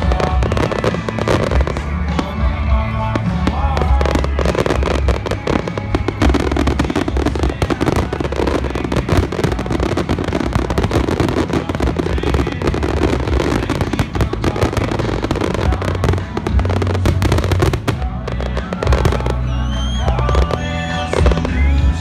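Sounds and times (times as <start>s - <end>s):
fireworks bursting: 0.0s - 22.0s
fireworks crackle: 0.0s - 22.0s.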